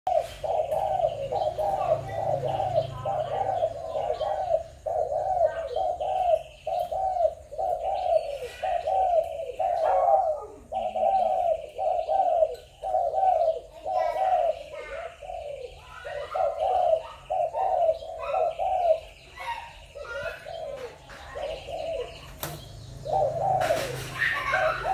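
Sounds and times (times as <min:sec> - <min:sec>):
dove cooing: 0:00.1 - 0:24.9.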